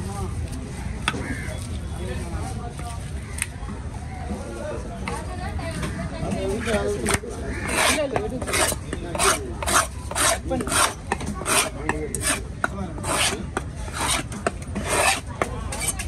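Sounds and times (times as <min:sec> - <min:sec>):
knife scraping fish: 0:06.6 - 0:16.0.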